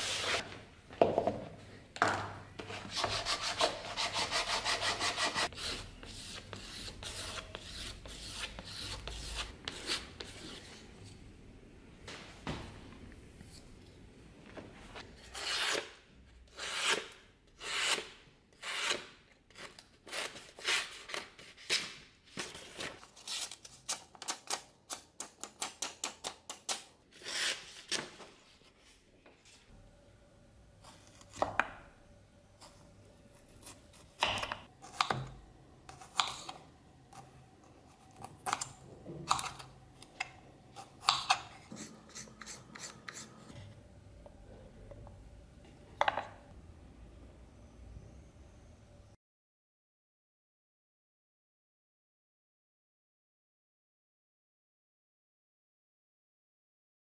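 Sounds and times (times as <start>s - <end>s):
knife rubbing on strop: 41.7s - 43.5s.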